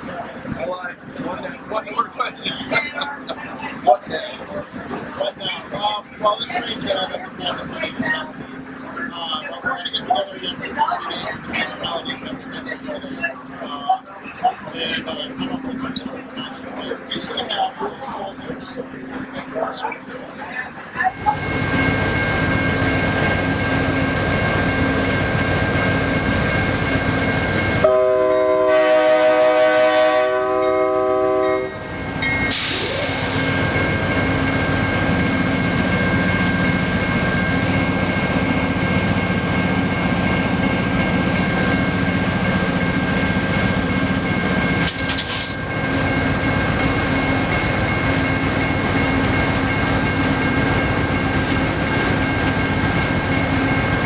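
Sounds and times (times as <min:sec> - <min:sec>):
diesel locomotive engine humming: 0:00.0 - 0:54.0
train horn chord: 0:27.8 - 0:31.8.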